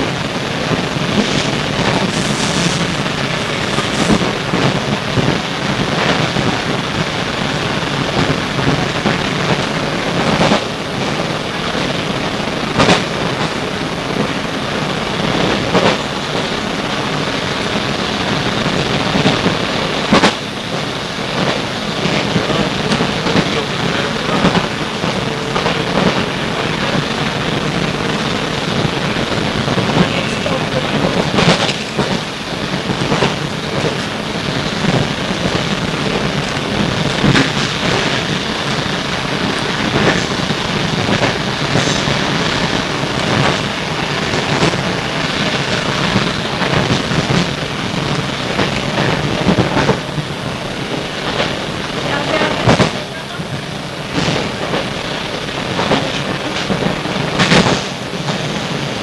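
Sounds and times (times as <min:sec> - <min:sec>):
train wheels rumbling on track: 0:00.0 - 0:59.0.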